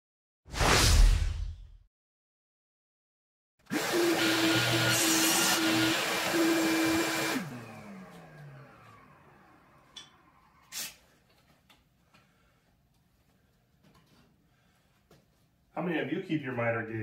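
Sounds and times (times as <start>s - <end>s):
table saw cutting board: 3.7s - 10.3s.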